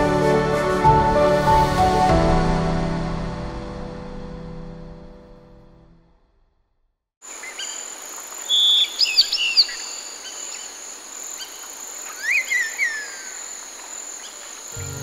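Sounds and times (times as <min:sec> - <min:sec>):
songbirds chirping: 0:07.2 - 0:15.0
high insect buzz: 0:07.3 - 0:15.0.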